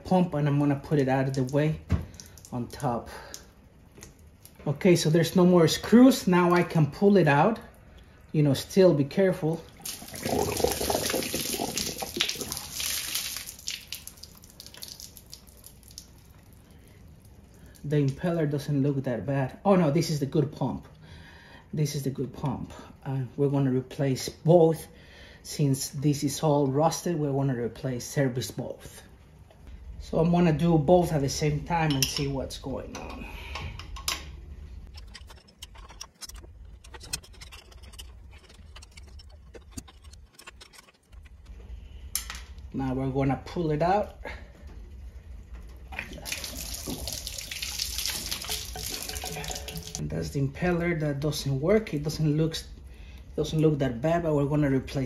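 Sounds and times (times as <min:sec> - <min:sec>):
low steady hum: 0:00.0 - 0:55.0
water splashing and dripping: 0:01.2 - 0:04.6, 0:09.7 - 0:17.9, 0:45.8 - 0:50.0.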